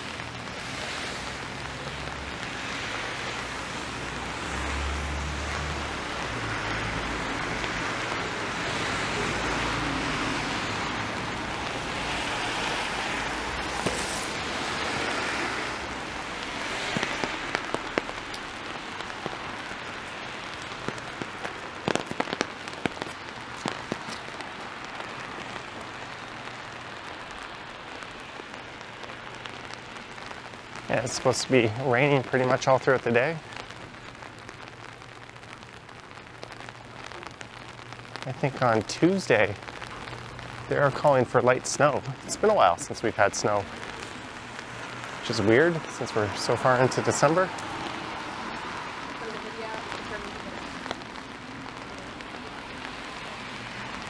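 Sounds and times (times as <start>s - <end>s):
car tyres hissing on wet road: 0.0s - 34.3s, 38.0s - 54.0s
rain on wet street: 0.0s - 54.0s
sharp taps and drips: 13.1s - 26.5s, 36.4s - 54.0s.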